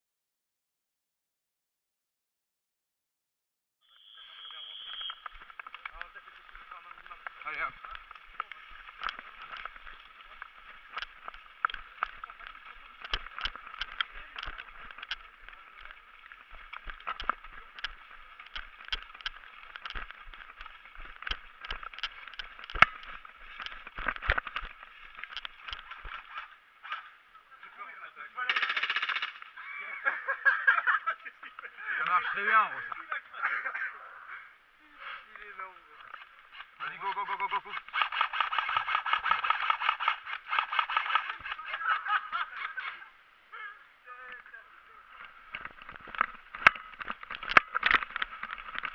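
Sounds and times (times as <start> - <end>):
running footsteps on leaves: 4.8 - 26.6, 35.2 - 42.8, 44.9 - 48.9
gear knocking and rattling: 5.3 - 26.5, 37.7 - 41.6, 45.2 - 48.9
airsoft rifles firing full auto: 37.7 - 41.6.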